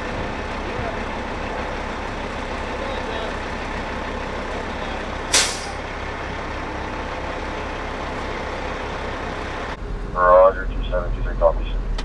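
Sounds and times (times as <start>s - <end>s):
heavy vehicle engine rumbling: 0.0s - 12.0s
air brake hiss: 5.3s - 5.8s.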